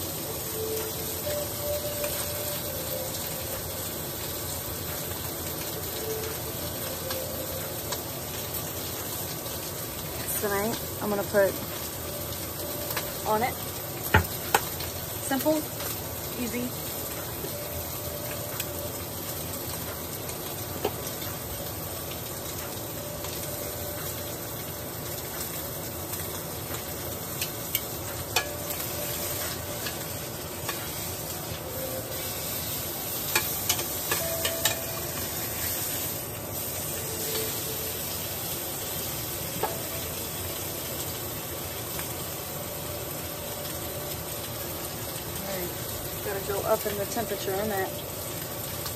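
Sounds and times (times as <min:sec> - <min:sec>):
steak sizzling in a pan: 0:00.0 - 0:48.9
tongs tapping a pan: 0:00.8 - 0:03.2, 0:12.8 - 0:13.2, 0:14.0 - 0:16.0, 0:26.1 - 0:36.0, 0:39.5 - 0:40.2.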